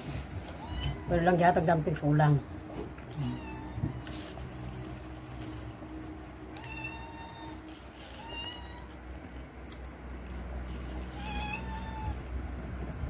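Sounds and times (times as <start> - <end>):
cat meowing: 0.5 - 1.2, 3.1 - 4.4, 6.5 - 9.1, 10.8 - 12.3.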